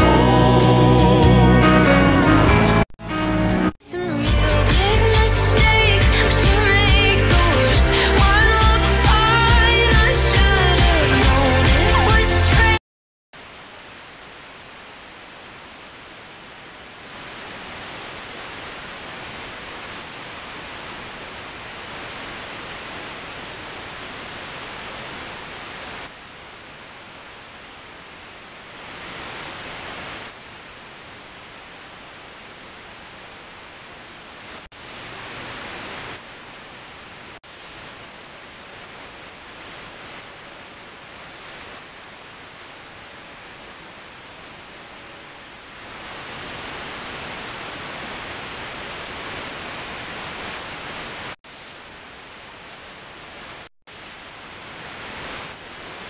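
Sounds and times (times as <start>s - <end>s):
radio static hiss: 13.4s - 56.0s.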